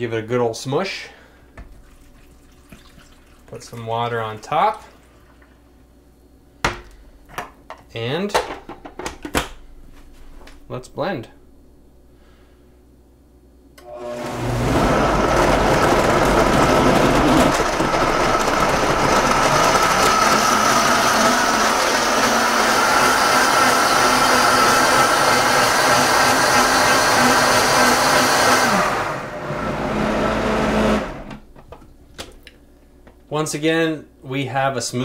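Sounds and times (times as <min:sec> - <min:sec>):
blender motor running: 0:13.8 - 0:31.4.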